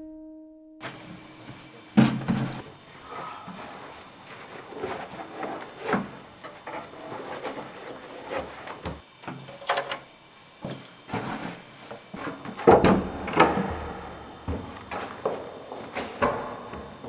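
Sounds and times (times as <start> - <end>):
door unlatching and opening: 12.6 - 15.4
footsteps scuffing on doormat: 14.4 - 17.0.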